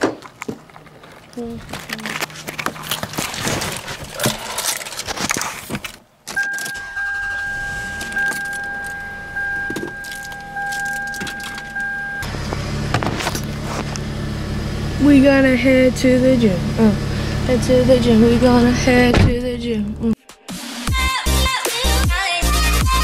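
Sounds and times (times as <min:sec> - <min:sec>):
car engine starting: 0:00.3 - 0:20.2
car warning buzzer: 0:06.4 - 0:12.4
keys jangling: 0:07.8 - 0:11.9.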